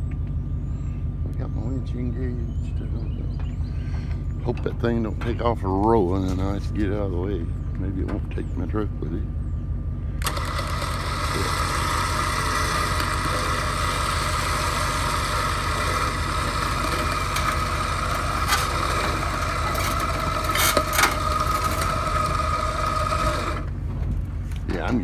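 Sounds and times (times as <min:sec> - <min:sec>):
truck engine idling: 0:00.0 - 0:25.0
winch whining: 0:10.2 - 0:23.9.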